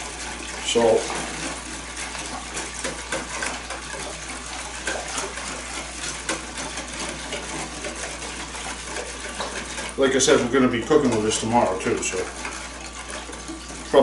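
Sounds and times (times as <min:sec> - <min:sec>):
water sloshing: 0:00.0 - 0:14.0
whisk clicking against tub: 0:00.0 - 0:14.0.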